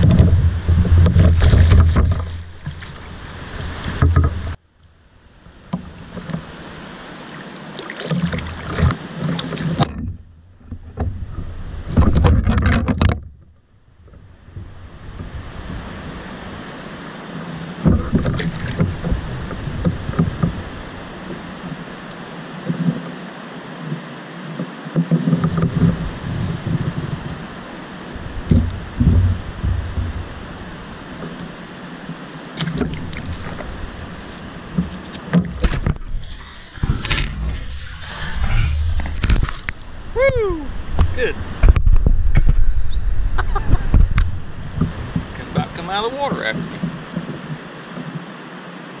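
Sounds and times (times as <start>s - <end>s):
knocks on kayak: 0.0s - 2.9s
wind: 0.0s - 49.0s
water lapping: 5.6s - 9.9s, 14.2s - 41.6s.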